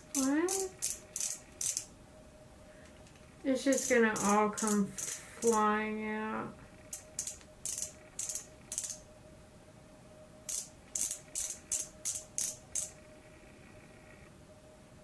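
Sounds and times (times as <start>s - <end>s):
faint steady hum: 0.0s - 15.0s
makeup pen twist clicks: 3.7s - 5.6s.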